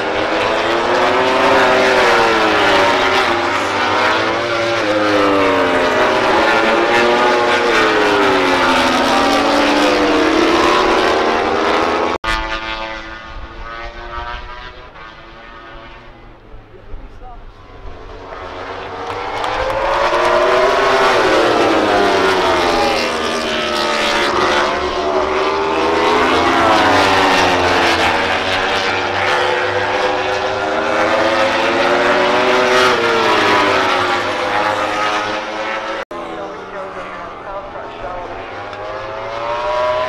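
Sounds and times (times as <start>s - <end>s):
race bikes screaming past: 18.1s - 35.3s.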